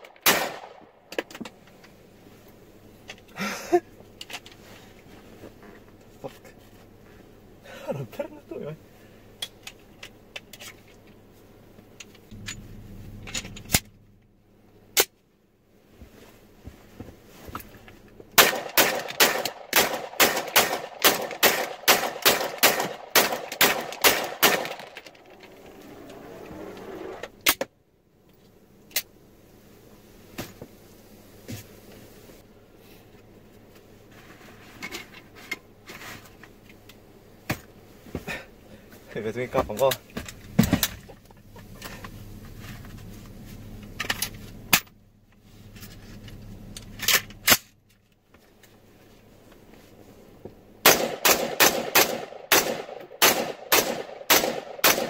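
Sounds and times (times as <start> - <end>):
handgun shots echoing in car: 0.2 - 0.8, 18.4 - 24.9, 50.8 - 55.0.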